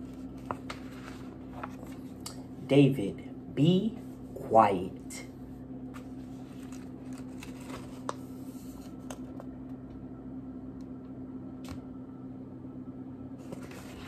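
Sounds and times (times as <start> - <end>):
paper rustling: 0.0 - 2.2, 5.9 - 9.3, 13.4 - 14.0
steady low hum: 0.0 - 14.0.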